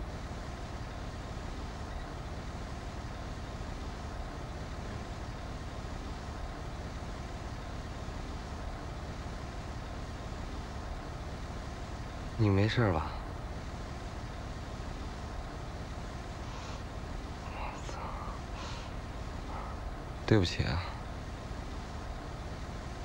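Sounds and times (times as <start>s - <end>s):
bus engine droning: 0.0s - 23.0s.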